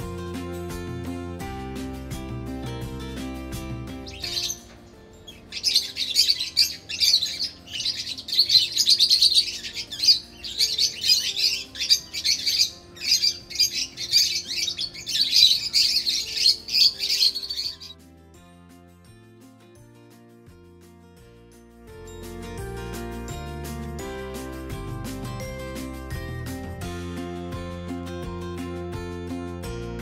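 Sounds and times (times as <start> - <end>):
faint background music: 0.0 - 30.0
parrots chattering: 5.3 - 18.0.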